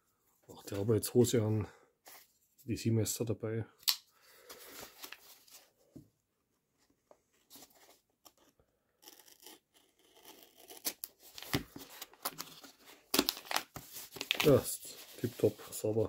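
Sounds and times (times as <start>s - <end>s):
knife slitting paper and tape: 9.0s - 12.6s
paper tearing and rustling: 9.0s - 15.6s.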